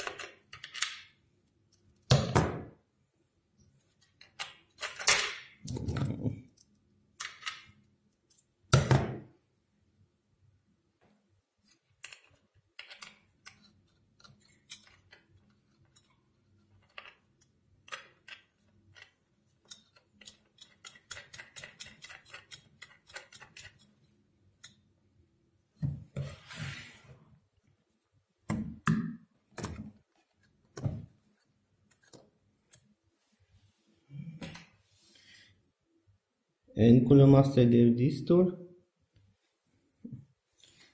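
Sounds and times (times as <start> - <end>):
small clicks and knocks of hardware: 11.8 - 23.8.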